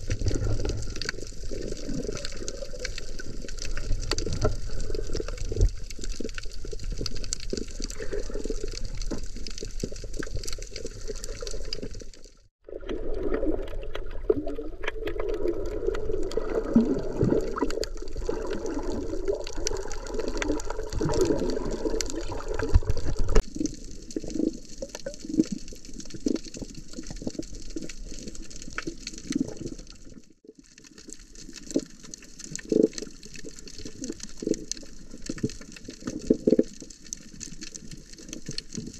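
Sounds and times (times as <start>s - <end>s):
muffled underwater water wash: 0.0s - 30.3s
small underwater clicks and crackles: 0.0s - 38.9s.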